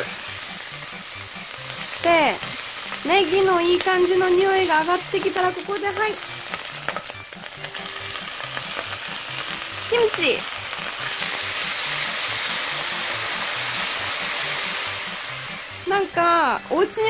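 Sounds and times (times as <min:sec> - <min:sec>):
food sizzling in a frying pan: 0:00.0 - 0:17.0
spatula stirring in a pan: 0:06.4 - 0:15.9.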